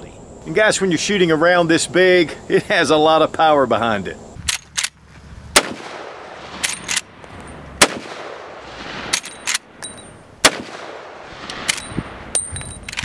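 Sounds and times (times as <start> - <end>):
rifle shots with echo: 5.6 - 7.2, 7.8 - 9.6, 10.4 - 11.9
rifle lever clicks: 12.6 - 13.0.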